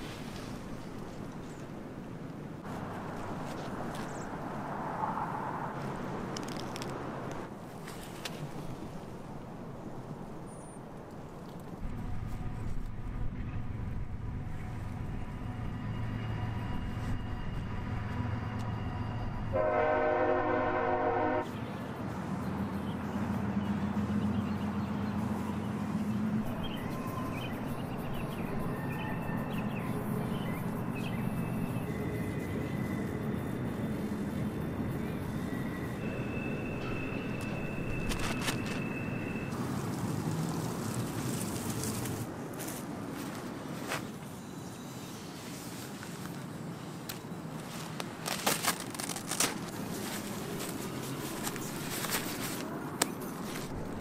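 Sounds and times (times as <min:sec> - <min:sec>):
steady low rumble: 0:11.8 - 0:19.5
tent fabric crinkling: 0:38.0 - 0:44.1, 0:45.2 - 0:54.0.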